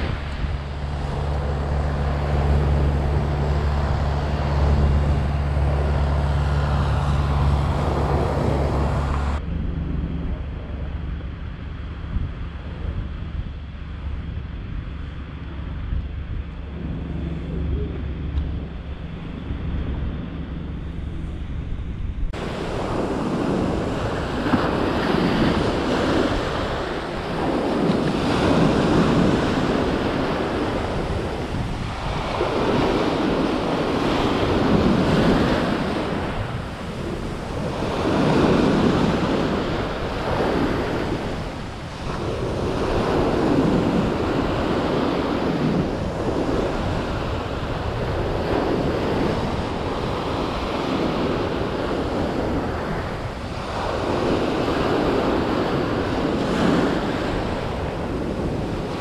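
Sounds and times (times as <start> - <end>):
small waves washing up shore: 0.0 - 9.4, 22.3 - 59.0.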